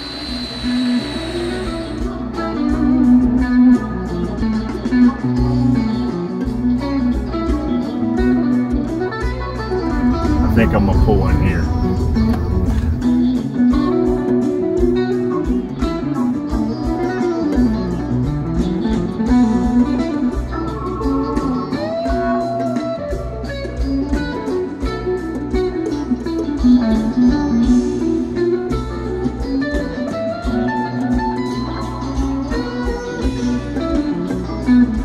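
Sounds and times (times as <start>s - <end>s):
electric guitar melody: 0.0s - 35.0s
bass line: 9.8s - 13.3s.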